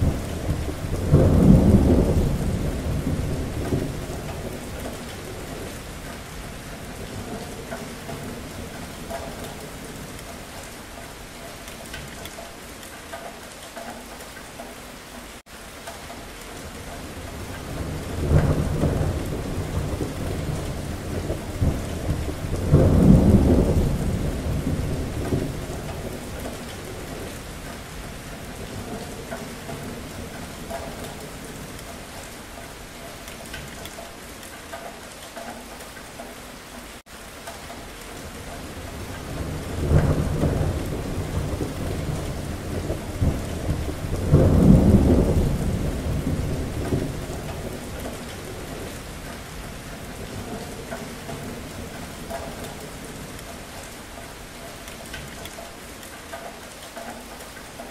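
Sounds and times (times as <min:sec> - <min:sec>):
thunder rumbling: 0:00.0 - 0:10.7, 0:16.6 - 0:32.2, 0:38.1 - 0:55.6
steady rain: 0:00.0 - 0:57.9.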